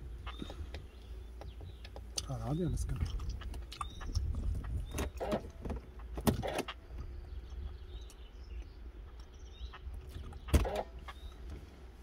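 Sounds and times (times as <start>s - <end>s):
car cabin rumble: 0.0s - 8.8s.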